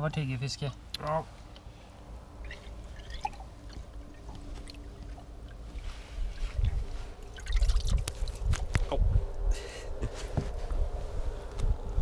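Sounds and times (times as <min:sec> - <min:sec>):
faint steady hum: 0:00.0 - 0:12.0
low rumble: 0:01.9 - 0:12.0
water sloshing and splashing: 0:02.4 - 0:08.7.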